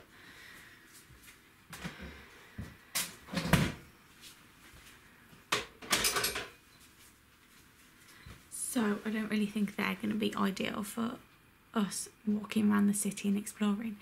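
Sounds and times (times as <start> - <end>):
household knocks and clatters: 5.5 - 6.6.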